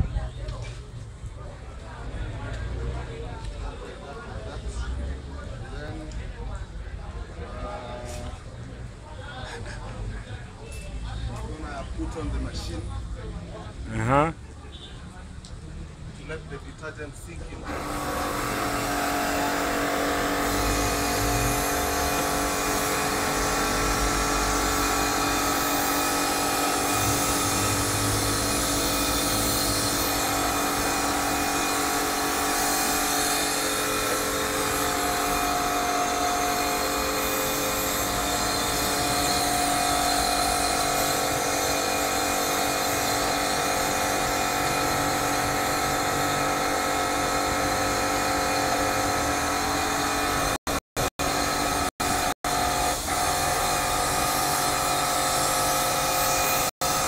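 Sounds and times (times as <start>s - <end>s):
pressure washer motor whine: 17.6s - 57.0s
water jet hissing: 17.7s - 46.9s.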